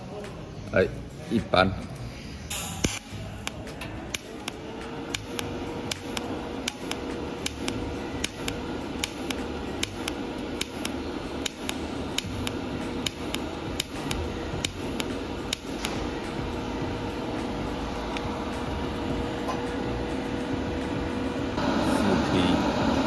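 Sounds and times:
welding arc humming and crackling: 2.4 - 23.0.

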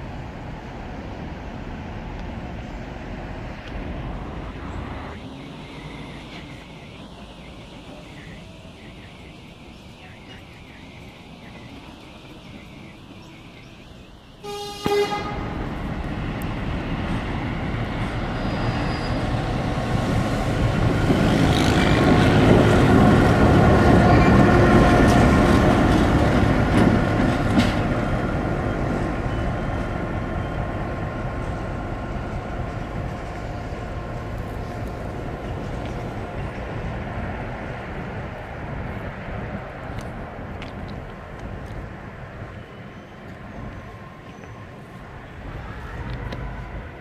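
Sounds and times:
diesel locomotive engine passing: 0.0 - 47.0
locomotive horn blast: 14.4 - 15.8.

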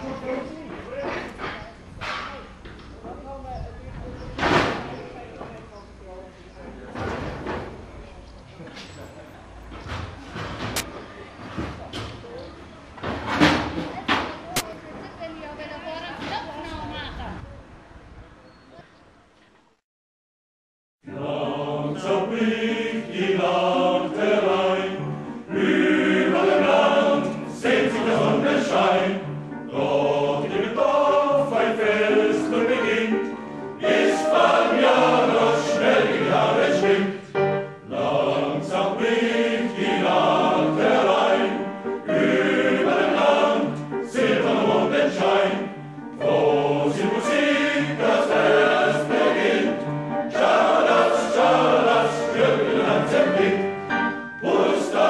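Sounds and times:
choir singing: 21.0 - 55.0.

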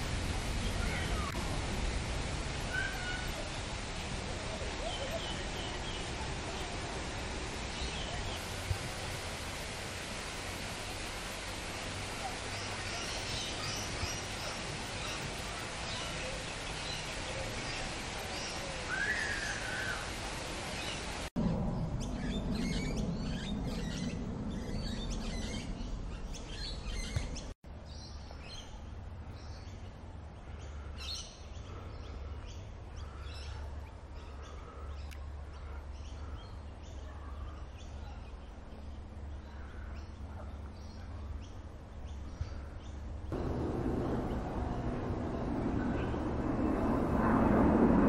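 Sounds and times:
birds chirping: 12.2 - 29.9, 30.5 - 47.4
low steady rumble: 21.4 - 27.8, 28.7 - 48.0.

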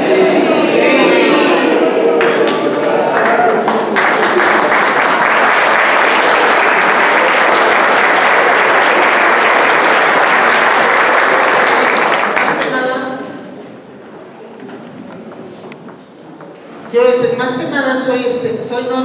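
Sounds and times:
audience applauding: 1.9 - 13.0.

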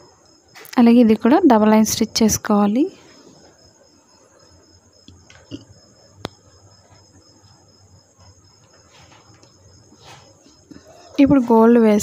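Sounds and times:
fabric rustling: 7.6 - 11.7.

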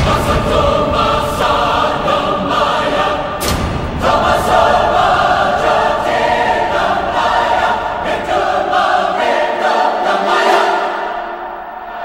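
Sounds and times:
choir singing held chords: 0.0 - 12.0.

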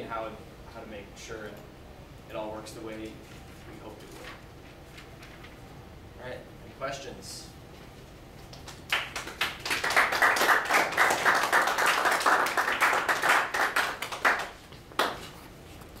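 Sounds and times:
small audience applauding: 8.5 - 15.3.

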